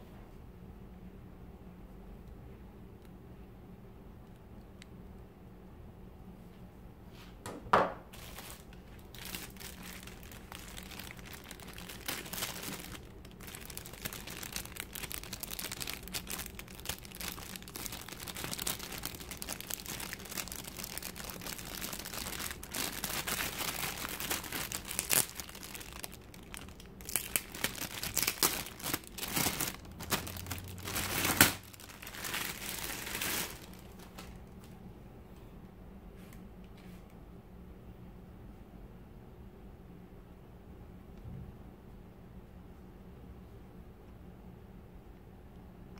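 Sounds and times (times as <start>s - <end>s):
plastic bag crinkling: 8.1s - 34.7s
label being peeled: 8.2s - 34.4s.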